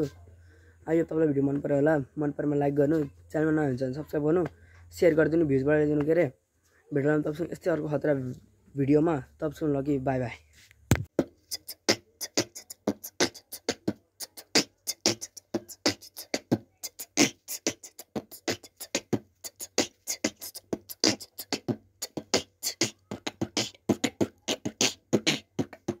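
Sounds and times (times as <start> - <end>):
fast choppy percussion beat: 11.1 - 26.0.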